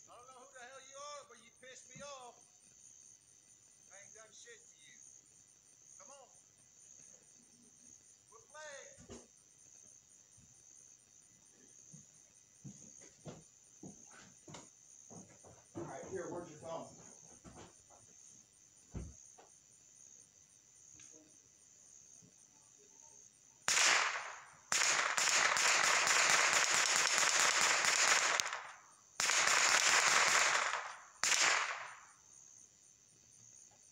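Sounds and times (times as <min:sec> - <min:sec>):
insects trilling: 0:00.0 - 0:33.9
rapid automatic gunfire: 0:23.7 - 0:32.0.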